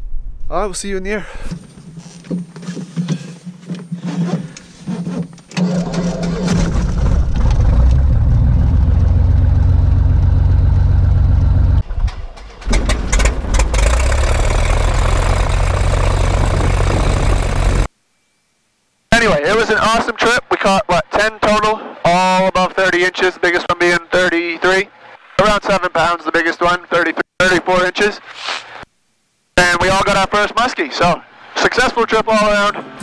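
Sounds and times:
aircraft engine starting and running: 5.4s - 17.9s.

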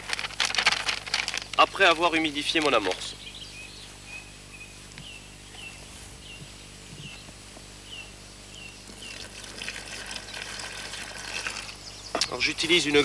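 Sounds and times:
bird chirping: 2.2s - 13.0s
water poured into plastic basin: 9.0s - 11.8s.

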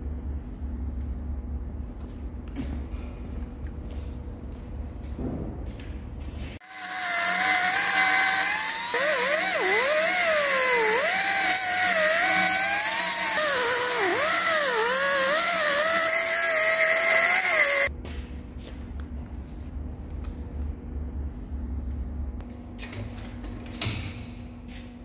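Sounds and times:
angle grinder cutting steel: 6.6s - 17.9s.

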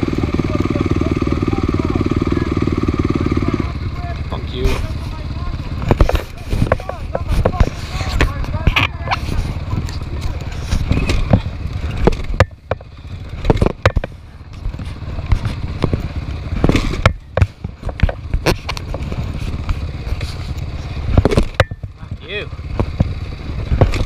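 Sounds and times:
motorcycle engine rumbling: 0.0s - 24.0s
knocks and clattering: 5.7s - 20.3s, 21.0s - 24.0s.

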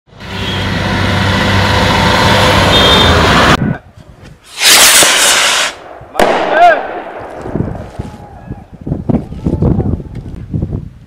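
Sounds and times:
truck engine humming: 0.1s - 3.6s.

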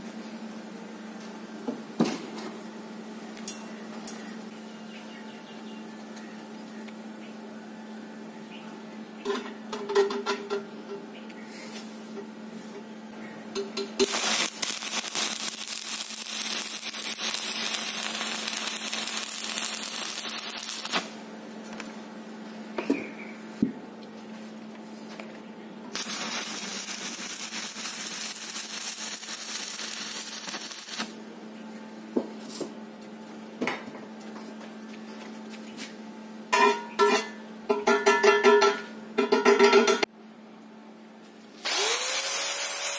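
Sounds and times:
steady hum: 0.0s - 41.6s
arc welding hiss: 14.0s - 21.2s, 25.9s - 31.2s.

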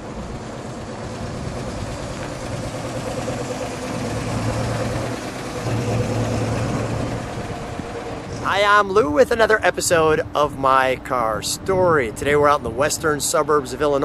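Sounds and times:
pickup truck engine driving past: 0.0s - 14.0s.

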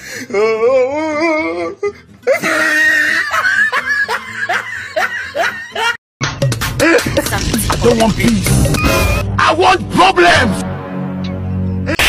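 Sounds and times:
music: 0.9s - 12.0s
laughter: 2.3s - 6.0s
wobbling laugh: 2.3s - 6.0s.

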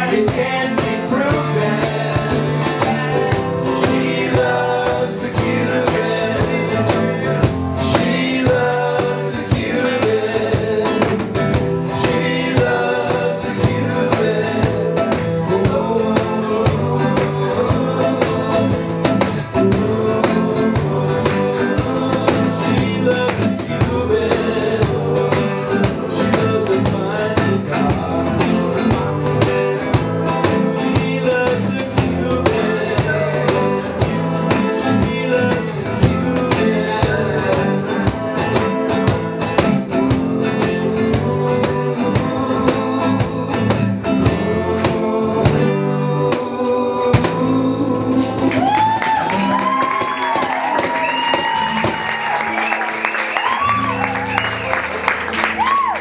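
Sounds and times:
acoustic guitars strummed: 0.0s - 56.0s
cajon beat: 0.0s - 56.0s.

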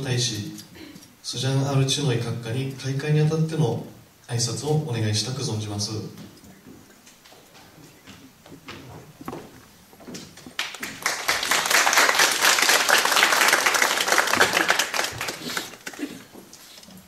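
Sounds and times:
audience applauding: 10.4s - 16.3s.

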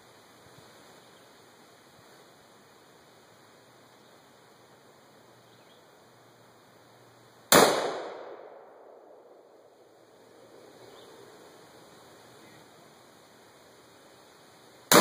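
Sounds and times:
gunshot with echo: 7.5s - 8.7s.

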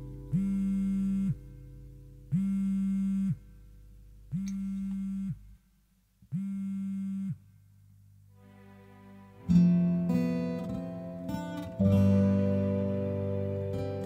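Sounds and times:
soft music pad: 8.3s - 14.0s.

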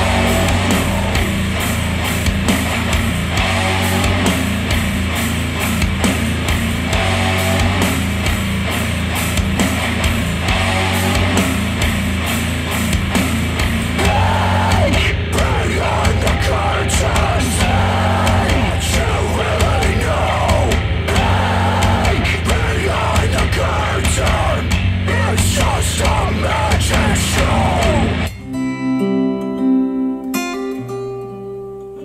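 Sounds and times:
heavy rock music over speakers: 0.0s - 28.3s
pitch-bending guitar line: 0.0s - 32.0s.

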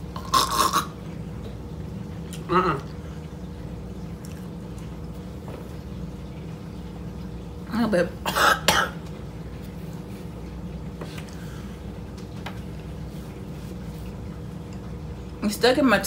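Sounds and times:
low room hum: 0.0s - 16.0s
person coughing: 8.3s - 9.0s.

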